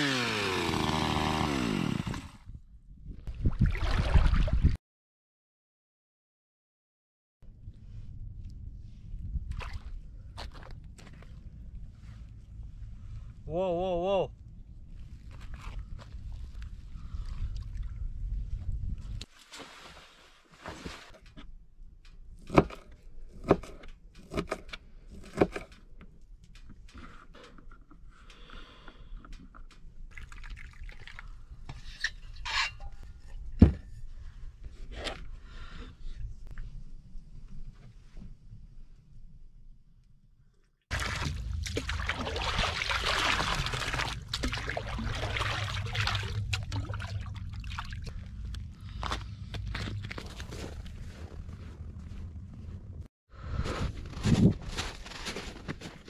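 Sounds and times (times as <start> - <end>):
icy water sloshing and splashing: 3.3 - 4.8, 9.5 - 10.0, 15.1 - 18.2, 30.0 - 31.6, 40.9 - 49.0
steady low rumble: 41.0 - 53.1.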